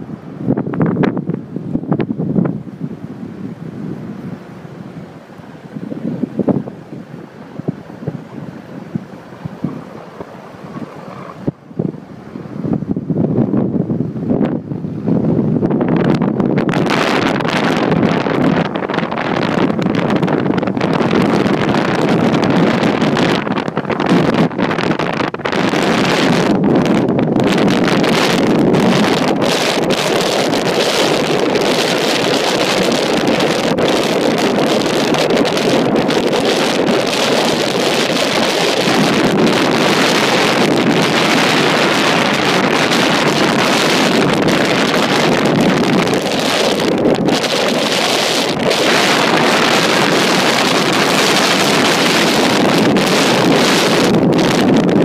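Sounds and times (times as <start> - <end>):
wind buffeting microphone: 0.0 - 55.0
vehicle running noise: 4.0 - 24.7.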